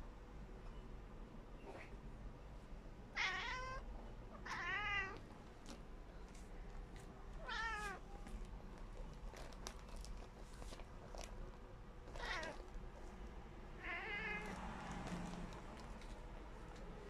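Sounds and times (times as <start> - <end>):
cat meowing: 3.1 - 5.2, 7.4 - 8.0, 12.1 - 12.6, 13.8 - 14.6.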